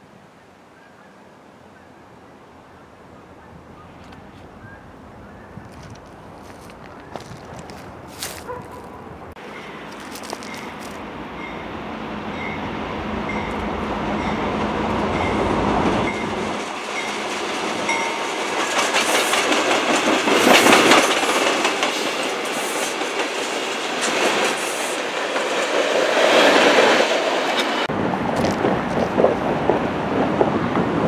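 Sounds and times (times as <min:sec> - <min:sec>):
train wheels clattering: 0:15.1 - 0:27.9.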